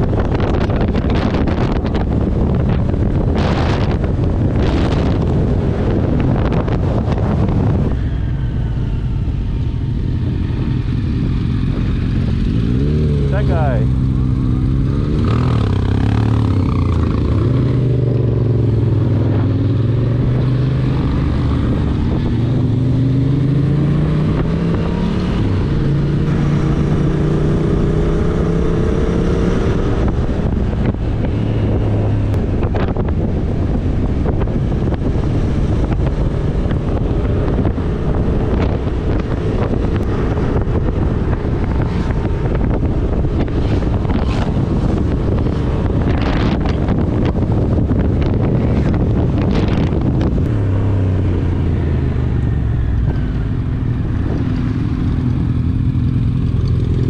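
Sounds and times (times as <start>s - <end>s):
wind rushing over microphone: 0.0s - 57.0s
motorcycle engine running: 8.8s - 22.8s, 29.8s - 57.0s.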